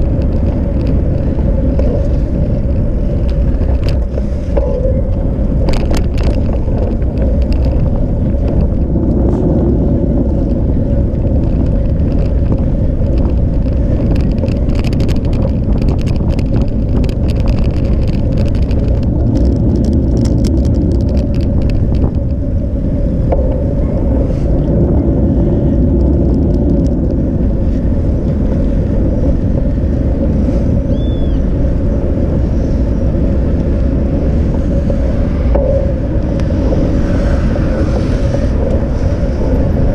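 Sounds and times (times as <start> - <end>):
bicycle tyres rumbling: 0.0 - 39.9
constant hum: 0.0 - 39.9
wind on microphone: 0.0 - 39.9
rattling clicks: 10.4 - 22.5.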